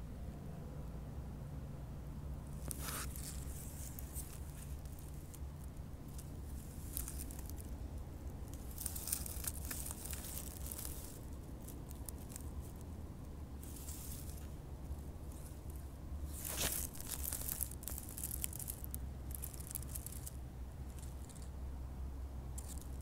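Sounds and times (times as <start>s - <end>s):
steady low rumble: 0.0s - 23.0s
pine needles rustling and crackling: 2.5s - 21.6s, 22.4s - 23.0s.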